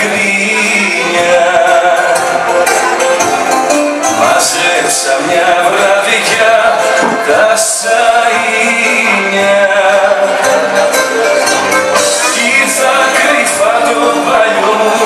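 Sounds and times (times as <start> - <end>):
instrumental accompaniment: 0.0 - 15.0
person singing: 0.0 - 15.0.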